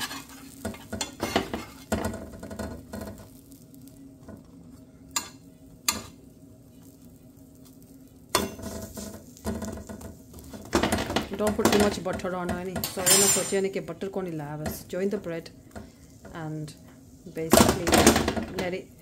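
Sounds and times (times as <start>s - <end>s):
spatula scraping on griddle: 0.0s - 3.7s, 8.4s - 15.0s
food sizzling: 0.0s - 19.0s.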